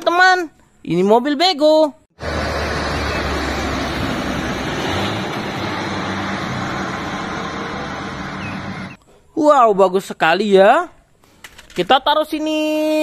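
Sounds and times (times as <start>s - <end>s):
diesel lorry engine humming: 2.2s - 9.0s
tyre and road noise: 2.2s - 9.0s.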